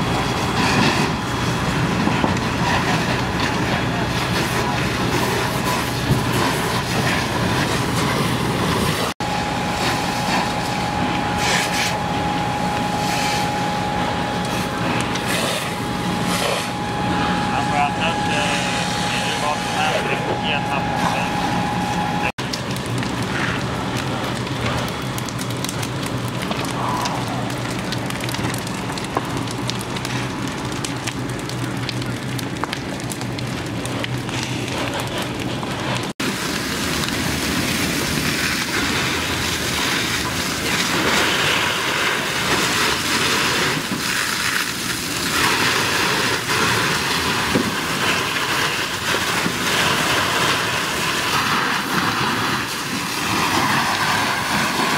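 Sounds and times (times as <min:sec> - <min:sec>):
fire crackling and hissing: 0:00.0 - 0:54.9
fire hose water spraying: 0:00.0 - 0:54.9.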